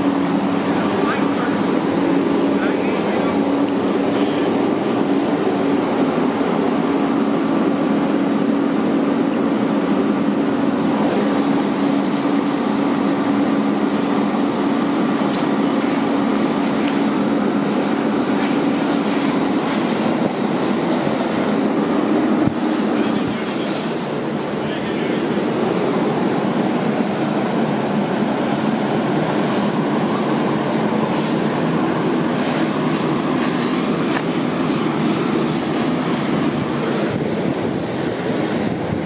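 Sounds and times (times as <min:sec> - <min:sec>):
fire hose spraying water: 0:00.0 - 0:39.0
mechanical drone: 0:00.0 - 0:39.0
fire crackles: 0:08.0 - 0:27.6, 0:28.2 - 0:38.6.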